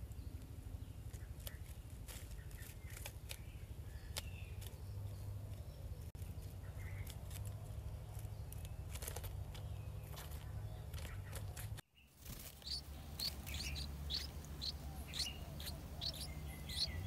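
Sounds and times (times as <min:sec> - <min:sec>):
steady low rumble: 0:12.4 - 0:17.0.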